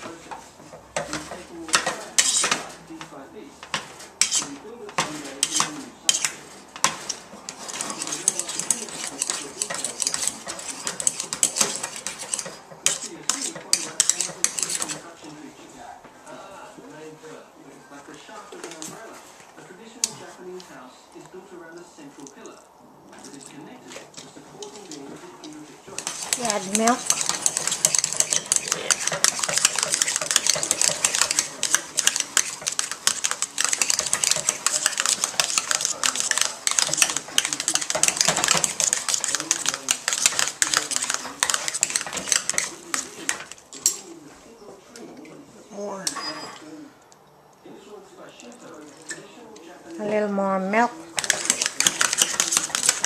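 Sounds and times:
metal utensil scraping a pot: 0.0s - 2.9s, 3.6s - 15.3s, 23.1s - 44.1s, 51.0s - 53.0s.

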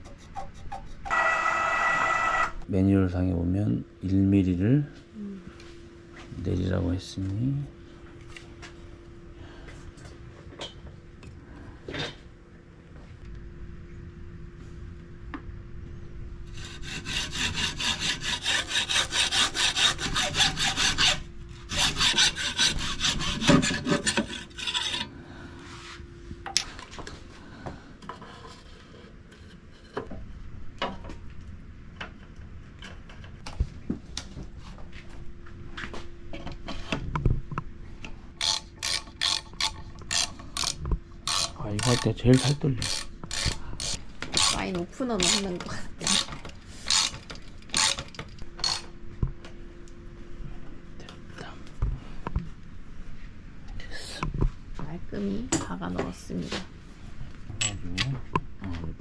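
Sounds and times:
hand saw cutting: 16.5s - 25.1s, 38.4s - 48.9s.

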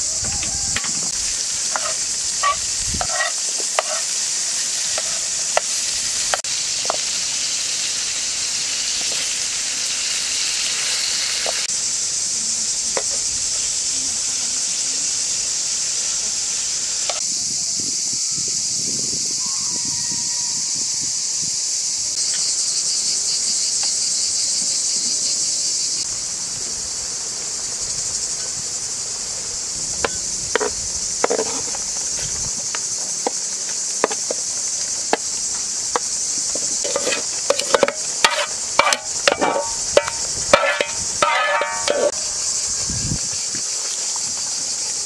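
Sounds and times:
insects chorus: 0.0s - 45.0s
frying pan and utensil clatter: 0.2s - 4.2s, 4.9s - 7.1s, 36.0s - 42.2s.

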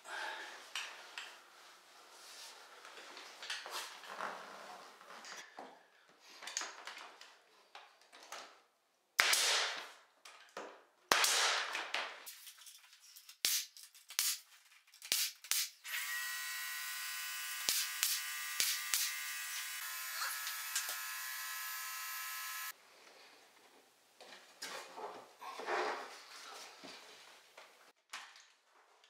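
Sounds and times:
nail gun firing: 9.2s - 9.9s, 11.1s - 12.0s, 15.1s - 15.7s, 17.6s - 19.2s.

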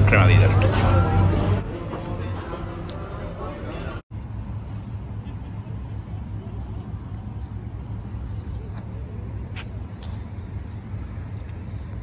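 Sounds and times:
low rumble of traffic: 0.0s - 12.0s
faint voices: 4.6s - 12.0s.

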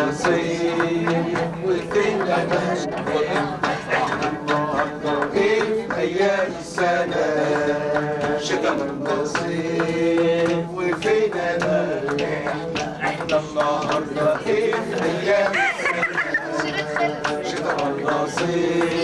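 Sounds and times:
men singing chant-like song: 0.0s - 19.0s
sharp percussive beats: 0.0s - 19.0s.

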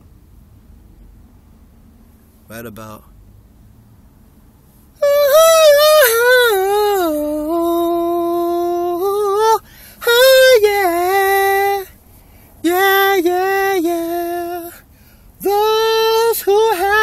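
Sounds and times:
person singing a cappella: 5.0s - 12.0s, 12.6s - 14.8s, 15.4s - 17.0s.

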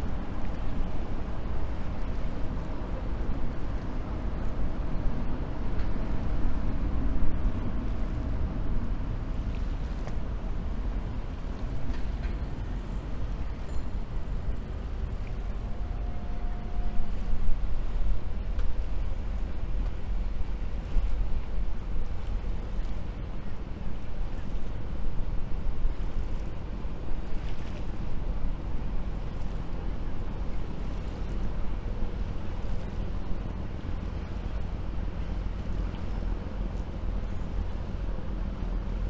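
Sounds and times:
boat engines: 0.0s - 39.0s
city traffic rumble: 0.0s - 39.0s.

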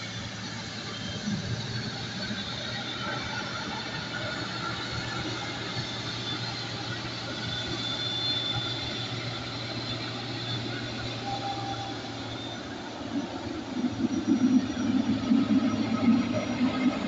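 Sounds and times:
jet engines running with whine: 0.0s - 17.0s.

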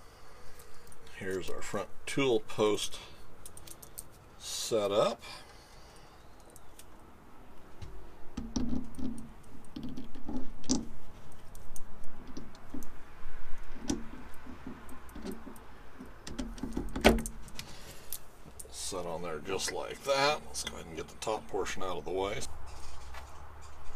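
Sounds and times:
small metal clicks and knocks: 3.4s - 4.2s, 8.4s - 13.0s, 13.6s - 18.8s.

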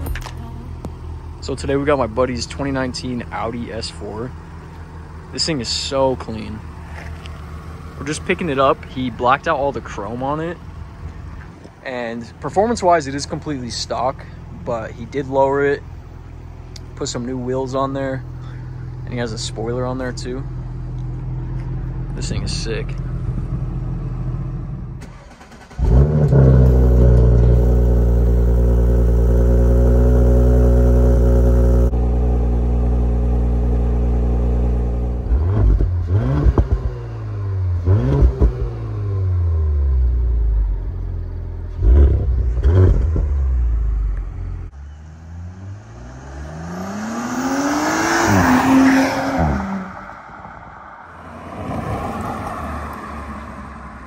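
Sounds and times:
car engine idling and revving: 0.0s - 54.0s
car accelerating: 18.2s - 54.0s.

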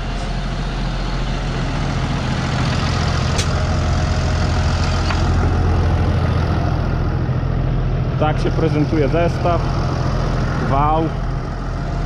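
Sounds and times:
diesel tractor engine running: 0.0s - 12.0s.

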